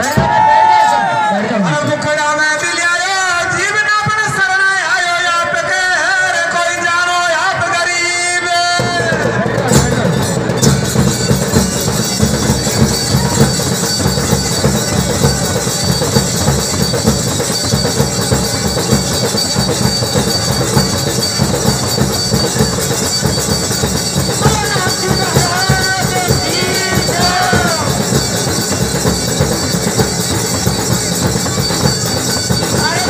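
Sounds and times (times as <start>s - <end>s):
rapid drumming: 8.6s - 33.0s
thin high steady tone: 10.9s - 33.0s
person singing: 24.5s - 28.1s.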